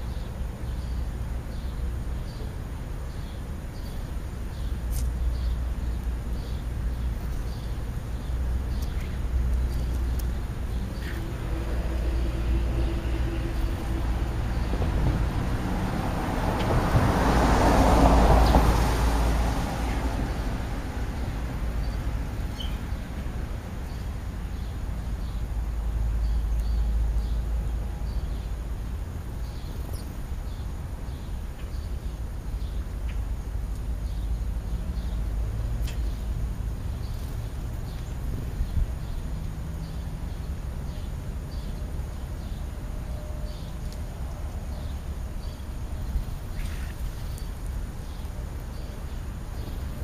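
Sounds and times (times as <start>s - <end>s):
sparrows chirping: 0.0s - 15.4s, 21.7s - 23.2s, 23.8s - 28.6s, 29.2s - 50.0s.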